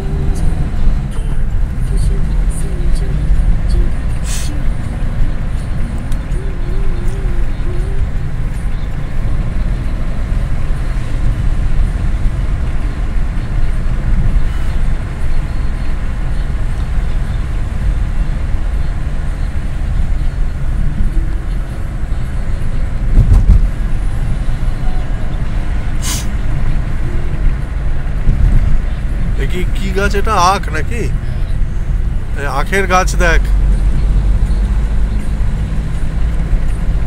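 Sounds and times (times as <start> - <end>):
car engine and tyres rumbling: 0.0 - 37.0
low thump: 23.1 - 23.7.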